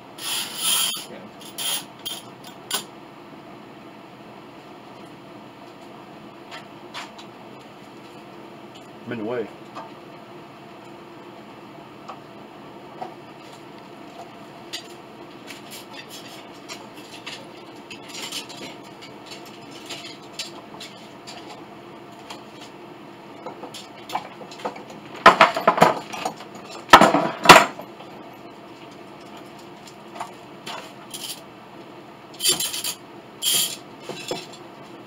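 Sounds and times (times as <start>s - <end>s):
metal tools clattering: 32.4s - 34.6s.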